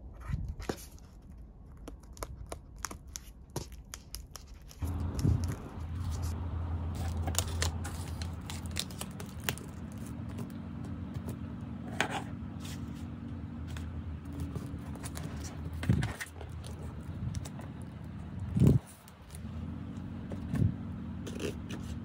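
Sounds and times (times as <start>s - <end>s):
paper rustling: 0.6s - 18.0s
steady low hum: 4.8s - 22.0s.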